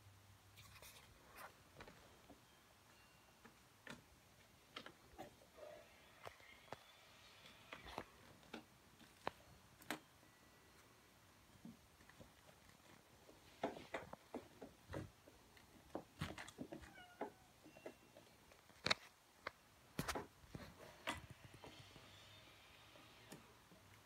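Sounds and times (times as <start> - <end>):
kitten paws tapping and scuffling: 12.0 - 21.2.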